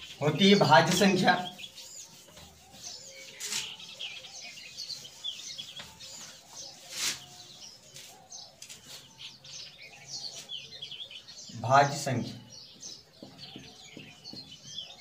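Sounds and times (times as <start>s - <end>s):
small birds chirping: 0.0s - 15.0s
duster wiping whiteboard: 0.3s - 8.2s.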